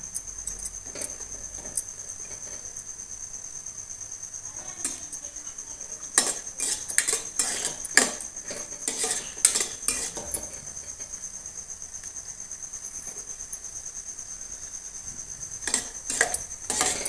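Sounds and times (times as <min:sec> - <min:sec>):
faint frying sizzle: 0:00.0 - 0:17.0
spoon scraping metal pan: 0:04.6 - 0:11.1, 0:15.6 - 0:17.0.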